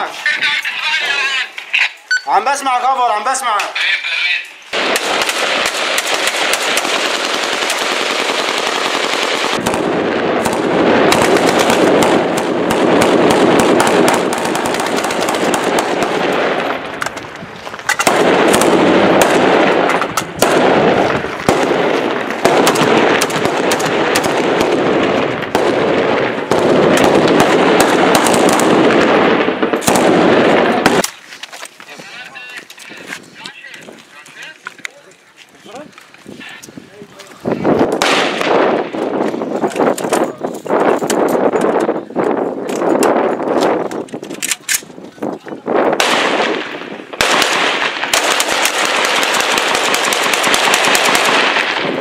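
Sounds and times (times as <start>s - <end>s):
automatic gunfire: 4.8s - 16.7s, 17.9s - 31.0s, 38.0s - 38.9s, 46.0s - 52.0s.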